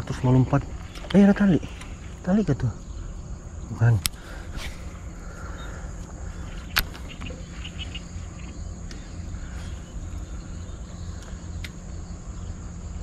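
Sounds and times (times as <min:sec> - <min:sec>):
insects droning: 0:00.0 - 0:13.0
low wind rumble: 0:00.0 - 0:13.0
faint ticks: 0:05.4 - 0:09.1, 0:11.1 - 0:11.9.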